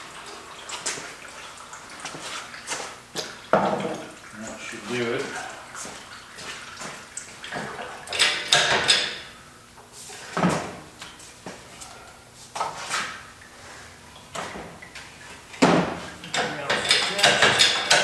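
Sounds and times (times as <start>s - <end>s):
metal parts and tools clanking: 16.2s - 18.0s.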